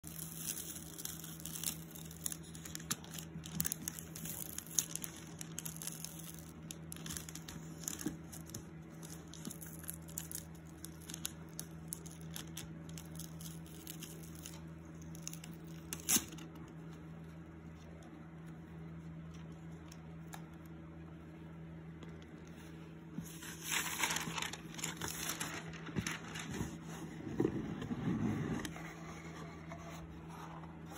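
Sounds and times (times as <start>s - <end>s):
wrapping paper crinkling: 0.0s - 16.5s, 23.2s - 27.0s
steady low hum: 0.0s - 30.9s.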